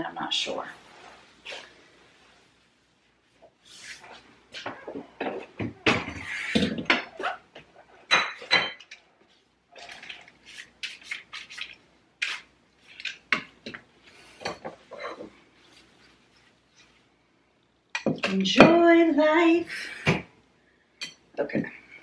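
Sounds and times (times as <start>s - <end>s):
dishes and cutlery clattering: 8.1s - 9.0s.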